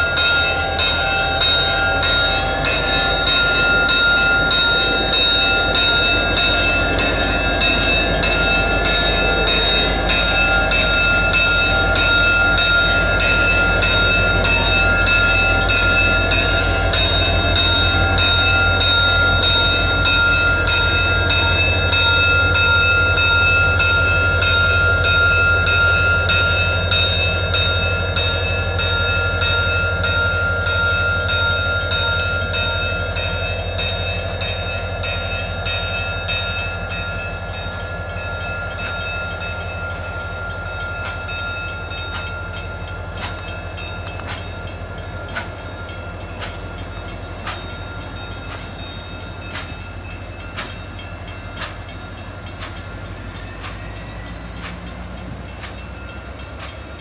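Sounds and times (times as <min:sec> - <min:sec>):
locomotive engine rumbling: 0:00.0 - 0:57.0
wheels clicking over rail joints: 0:40.1 - 0:57.0.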